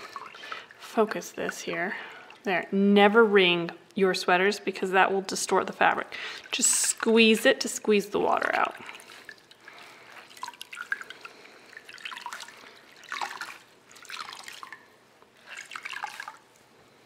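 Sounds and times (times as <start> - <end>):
water dripping into metal bowl: 8.3 - 15.0.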